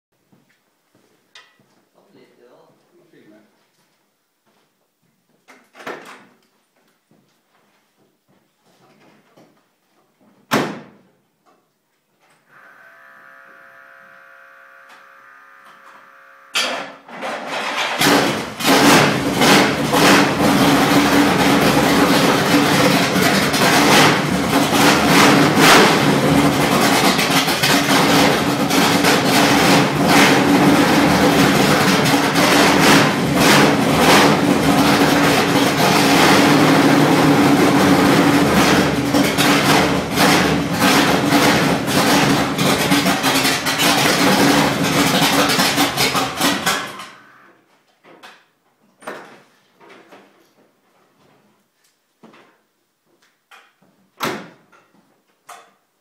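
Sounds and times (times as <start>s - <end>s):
loud engine running: 18.0s - 47.0s.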